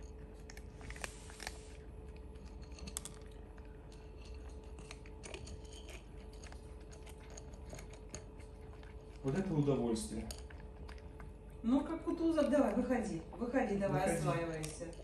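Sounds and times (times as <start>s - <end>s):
cat crunching dry kibble: 0.0s - 13.3s
faint steady hum: 0.0s - 15.0s.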